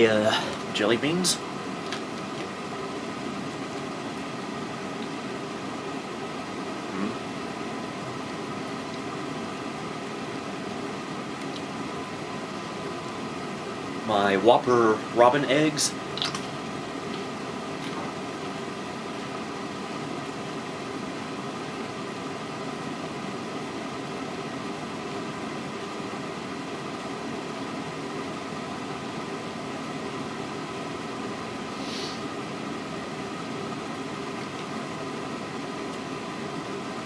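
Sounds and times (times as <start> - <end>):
constant hiss: 0.0 - 37.0
fan-like mechanical hum: 0.0 - 37.0
faint high hiss: 31.7 - 32.3.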